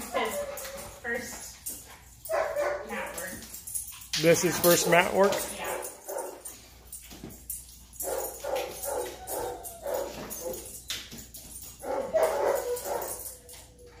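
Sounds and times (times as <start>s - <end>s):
dog whining and whimpering: 8.7s - 10.7s, 12.1s - 14.0s.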